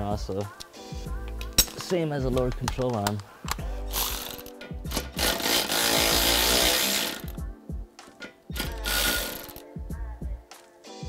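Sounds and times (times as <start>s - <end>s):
background music: 0.0s - 11.0s
power tool running: 4.0s - 7.3s, 8.6s - 9.6s.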